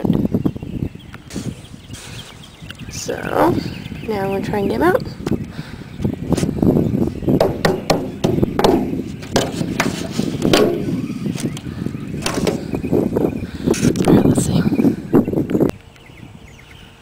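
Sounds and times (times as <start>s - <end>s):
pipe sections knocking and scraping: 7.4s - 11.5s, 12.2s - 12.8s.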